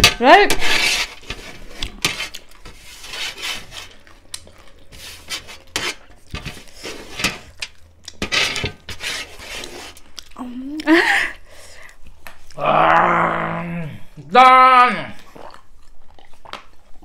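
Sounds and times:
crunching and chewing snack: 3.7s - 6.8s, 15.2s - 17.0s.

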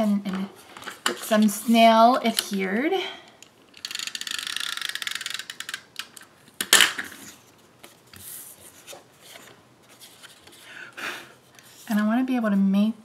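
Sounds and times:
paper handling: 7.1s - 10.6s.

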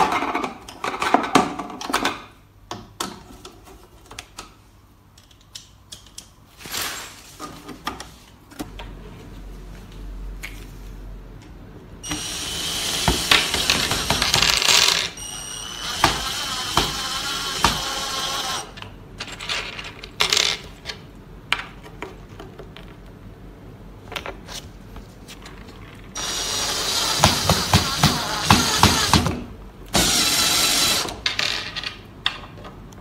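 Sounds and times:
cordless drill driving screws: 12.0s - 18.7s, 26.2s - 29.3s, 30.0s - 31.2s.

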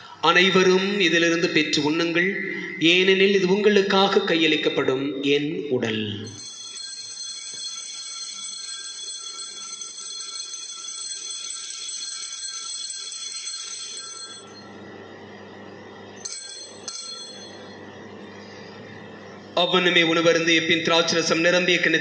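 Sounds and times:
bell ringing: 6.2s - 14.8s, 16.2s - 17.9s
short bell rings: 6.3s - 14.8s, 16.2s - 17.8s.

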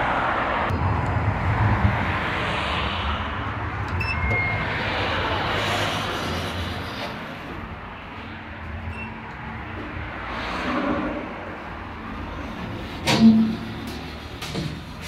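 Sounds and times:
road traffic passing: 0.0s - 15.0s
elevator electronic beeps: 3.9s - 5.8s, 8.9s - 9.4s.

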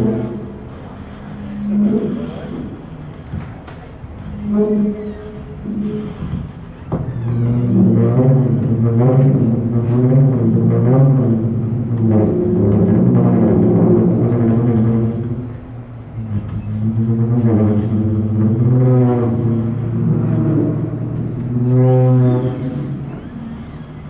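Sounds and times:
low drone: 0.0s - 24.0s
wavering feedback tones: 14.0s - 24.0s.

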